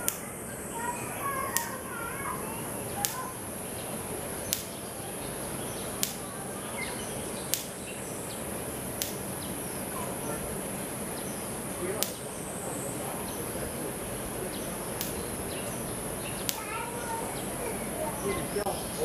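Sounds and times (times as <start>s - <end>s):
sharp click: 0.0s - 0.3s, 1.5s - 1.8s, 3.0s - 3.3s, 4.4s - 4.8s, 6.0s - 6.2s, 7.5s - 7.8s, 9.0s - 9.2s, 12.0s - 12.3s, 15.0s - 15.2s, 16.4s - 16.7s
steady high-pitched hiss: 0.0s - 19.0s.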